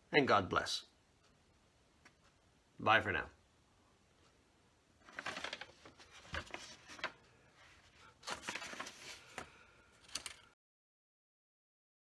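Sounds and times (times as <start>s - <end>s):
paper rustling and crinkling: 5.0s - 10.5s.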